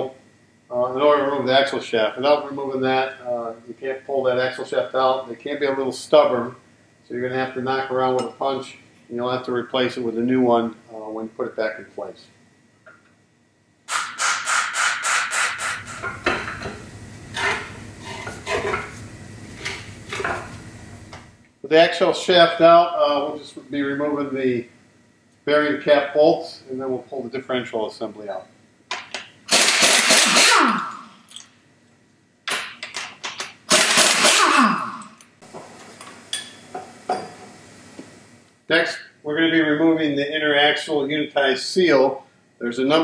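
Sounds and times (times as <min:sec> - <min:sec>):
impact wrench hammering: 0:13.9 - 0:16.7, 0:28.9 - 0:31.1, 0:32.5 - 0:35.2.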